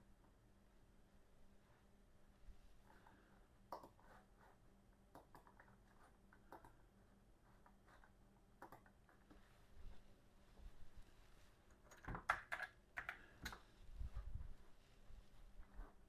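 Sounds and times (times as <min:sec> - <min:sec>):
low steady hum: 0:00.0 - 0:12.2
computer mouse clicks: 0:03.7 - 0:04.1, 0:05.1 - 0:06.9, 0:08.0 - 0:09.2, 0:11.7 - 0:13.6.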